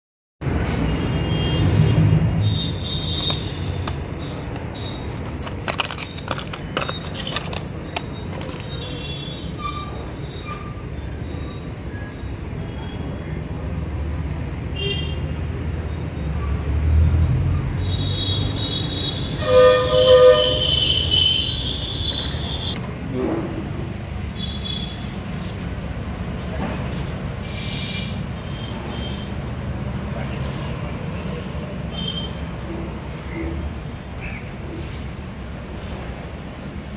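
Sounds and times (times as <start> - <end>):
horn sounding: 17.8 - 22.8.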